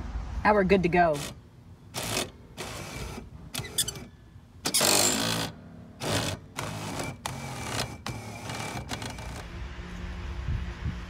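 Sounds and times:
electric motor driving mechanism: 1.2s - 9.6s.

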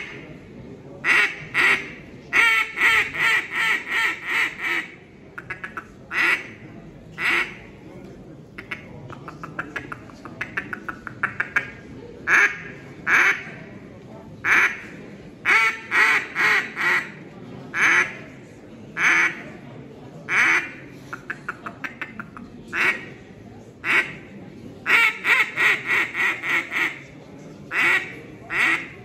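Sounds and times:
duck call: 1.1s - 6.5s, 23.8s - 24.2s, 24.9s - 27.0s, 27.7s - 28.9s.

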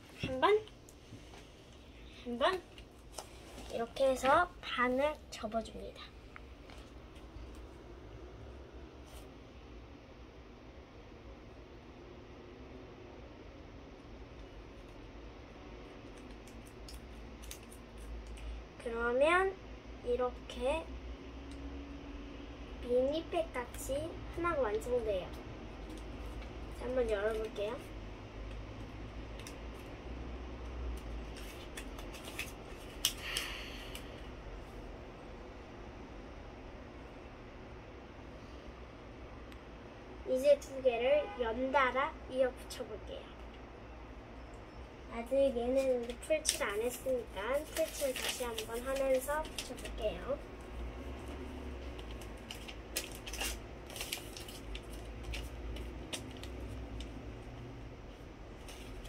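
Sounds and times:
light crinkles and taps: 6.3s - 7.7s, 16.0s - 18.5s, 28.4s - 29.9s
paper crinkling: 31.2s - 33.4s, 45.9s - 50.4s, 51.3s - 57.1s.

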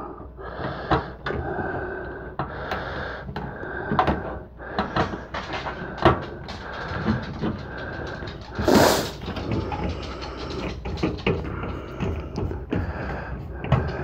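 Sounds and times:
screwdriver scraping screw: 8.5s - 11.4s.

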